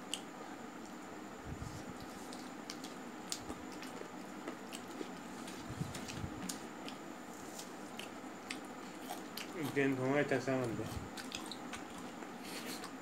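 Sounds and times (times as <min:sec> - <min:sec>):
person chewing food: 0:02.0 - 0:09.9, 0:10.8 - 0:13.0.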